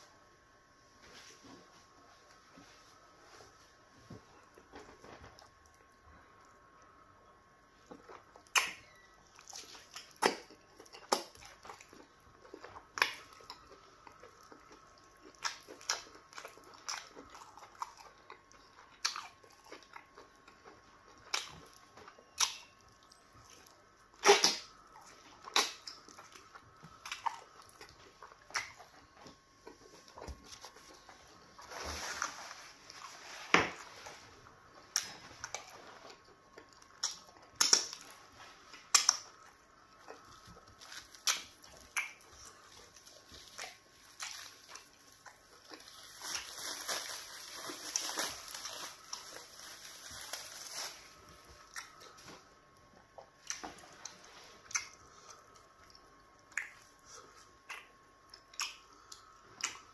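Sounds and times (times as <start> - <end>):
lip smacks and chewing: 7.9 - 30.9, 34.9 - 45.9, 51.6 - 59.9.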